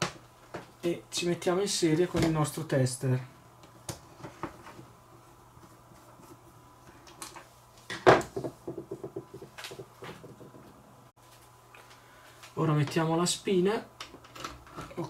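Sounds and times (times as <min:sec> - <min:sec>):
tool knocking on workbench: 0:08.0 - 0:10.7
rattling taps: 0:08.2 - 0:10.8.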